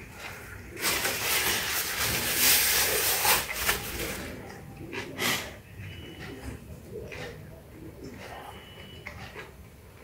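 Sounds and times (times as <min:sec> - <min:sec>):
paper napkin rustling: 0:00.7 - 0:04.4
short paper crackles: 0:00.8 - 0:04.3.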